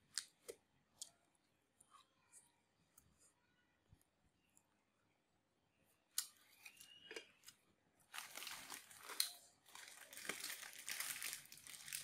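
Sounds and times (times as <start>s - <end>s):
plastic bag crinkling: 8.1s - 12.0s.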